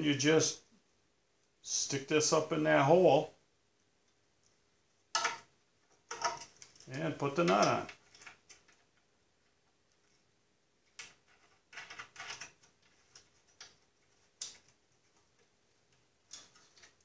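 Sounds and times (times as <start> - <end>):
small metal parts clicking: 6.1 - 6.9.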